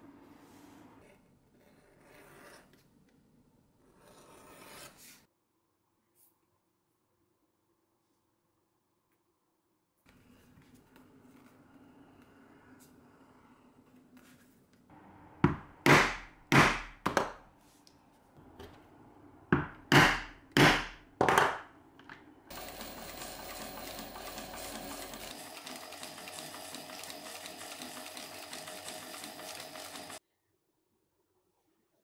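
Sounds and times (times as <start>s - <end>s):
industrial sewing machine running: 22.5s - 30.2s.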